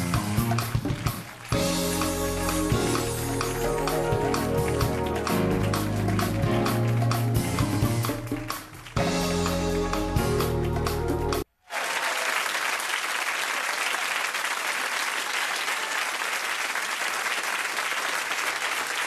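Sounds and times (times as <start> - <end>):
music playing: 0.0 - 11.5
studio audience applauding: 0.0 - 19.0.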